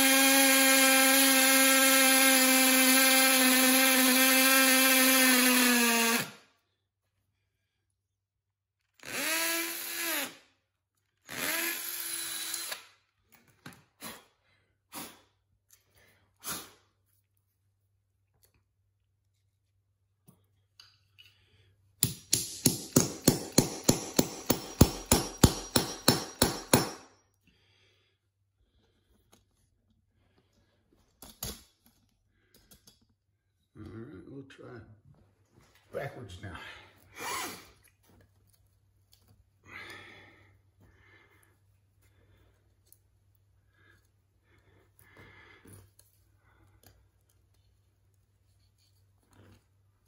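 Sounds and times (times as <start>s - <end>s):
hammer striking nail: 22.0s - 27.1s.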